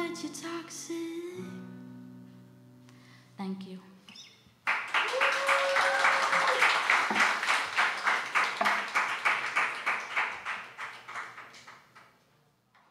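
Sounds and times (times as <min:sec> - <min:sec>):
audience applauding: 0:04.7 - 0:12.1.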